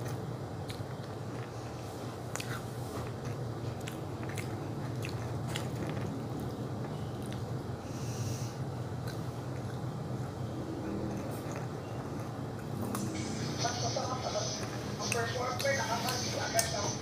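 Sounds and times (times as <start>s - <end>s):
person chewing crunchy snack: 0.0s - 7.6s, 10.9s - 13.0s
steady low hum: 0.0s - 17.0s.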